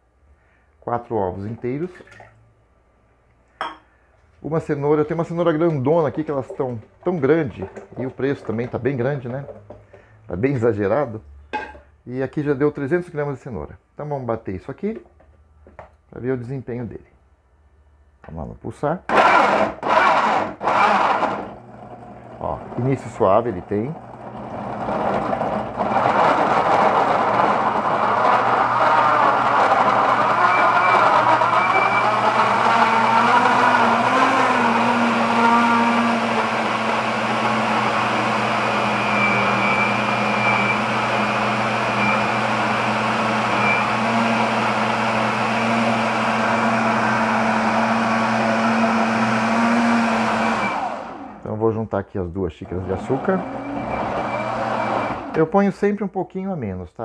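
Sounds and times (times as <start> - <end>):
blender blades chopping carrot: 19.1 - 23.2, 23.9 - 51.4, 52.7 - 55.5
blender motor running: 19.1 - 51.4, 52.7 - 55.5.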